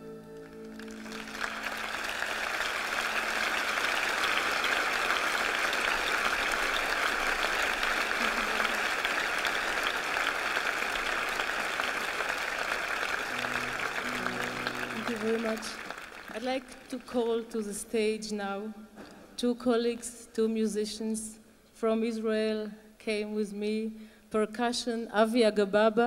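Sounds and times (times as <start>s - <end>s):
large audience applauding: 0.0s - 17.2s
song ending: 13.3s - 16.0s.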